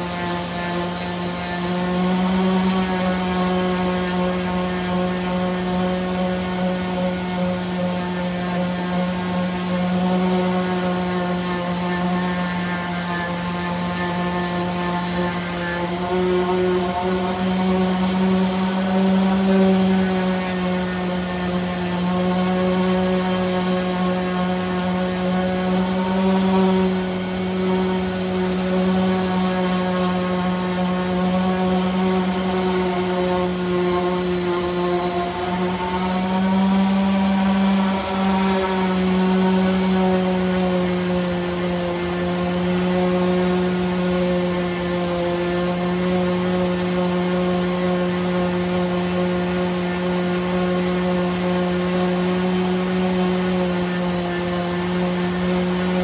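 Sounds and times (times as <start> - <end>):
orbital sander on wood: 0.0 - 56.0.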